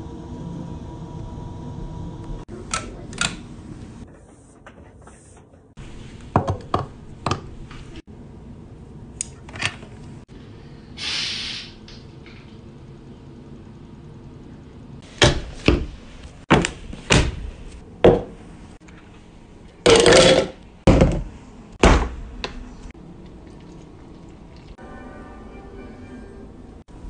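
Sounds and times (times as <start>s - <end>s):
short hiss: 11.0s - 11.8s
low room hum: 11.6s - 27.0s.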